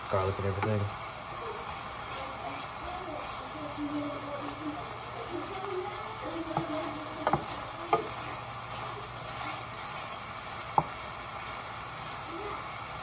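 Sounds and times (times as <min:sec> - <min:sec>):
food frying sizzle: 0:00.0 - 0:13.0
wooden spoon stirring in pot: 0:00.1 - 0:13.0
spoon knocking against pot: 0:06.5 - 0:08.2, 0:10.7 - 0:11.0.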